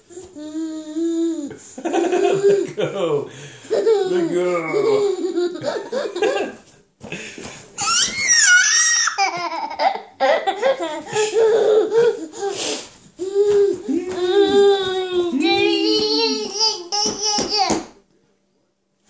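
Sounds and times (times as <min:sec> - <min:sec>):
baby laughing: 0:01.2 - 0:02.8, 0:03.7 - 0:06.6, 0:07.8 - 0:12.5, 0:15.8 - 0:17.9.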